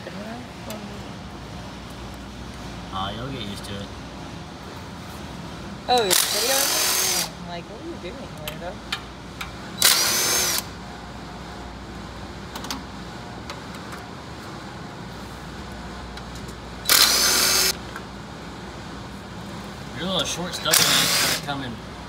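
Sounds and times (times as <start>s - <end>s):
power tool motor whine: 6.1s - 7.4s, 9.8s - 10.7s, 16.9s - 17.8s, 20.7s - 21.4s.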